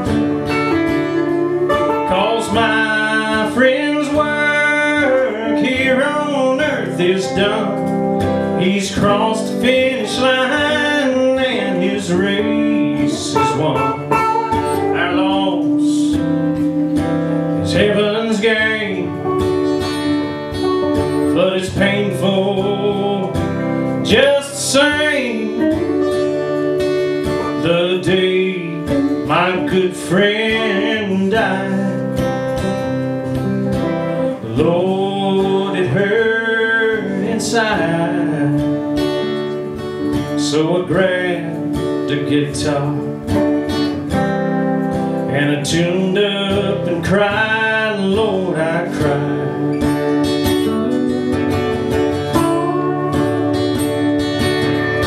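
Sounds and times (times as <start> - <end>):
electric lead guitar bending lines: 0.0 - 55.0
strummed acoustic guitar: 0.0 - 55.0.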